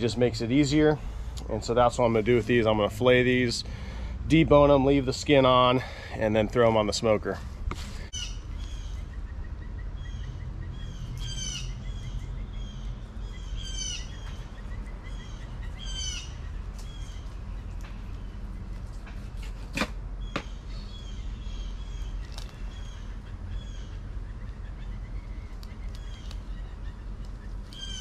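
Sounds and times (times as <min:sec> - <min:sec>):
low outdoor rumble: 0:00.0 - 0:28.0
songbird chirping: 0:08.1 - 0:19.2, 0:20.2 - 0:28.0.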